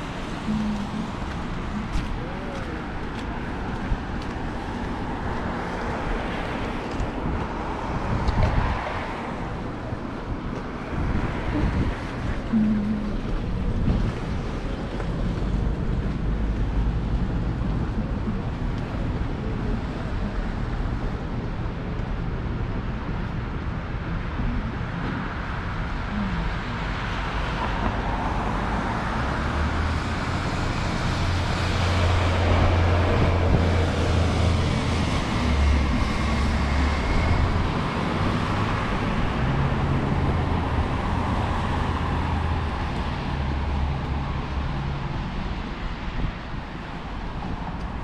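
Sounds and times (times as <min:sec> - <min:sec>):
cars passing: 0:00.0 - 0:48.0.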